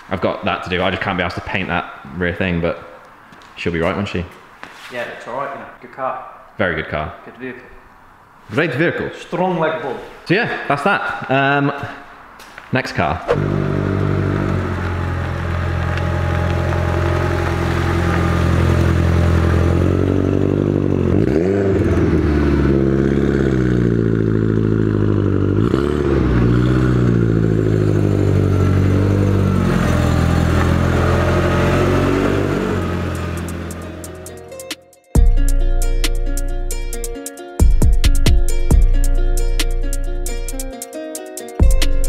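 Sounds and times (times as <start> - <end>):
car engine revving: 13.2 - 34.6.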